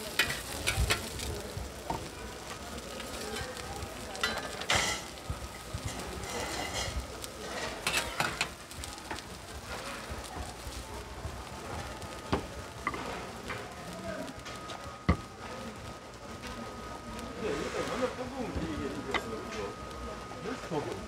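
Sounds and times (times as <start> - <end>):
shellfish sizzling on griddle: 0.0 - 21.0
metal spatula scraping steel plate: 6.2 - 8.5.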